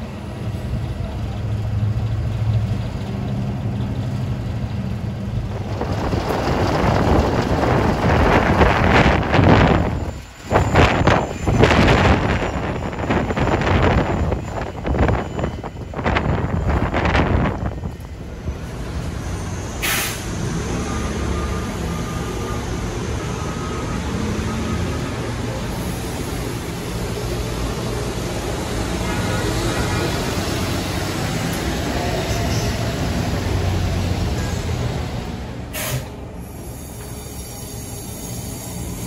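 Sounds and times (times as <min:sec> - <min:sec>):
bus engine and road rumble: 0:00.0 - 0:39.0
air brake hiss: 0:19.8 - 0:20.3, 0:35.7 - 0:39.0.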